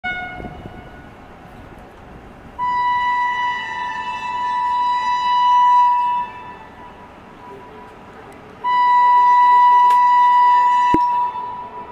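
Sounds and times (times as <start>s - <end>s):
train horn blast: 0.0s - 1.3s, 2.6s - 6.8s
train rumbling: 0.0s - 11.9s.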